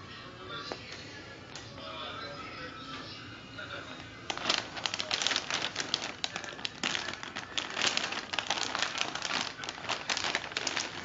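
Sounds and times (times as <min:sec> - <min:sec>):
plastic bag crinkling: 0:04.2 - 0:11.0.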